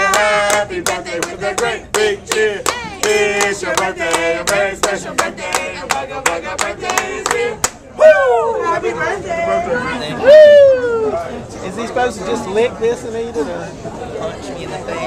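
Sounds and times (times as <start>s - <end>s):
group singing: 0.0s - 7.8s
people clapping: 0.0s - 7.8s.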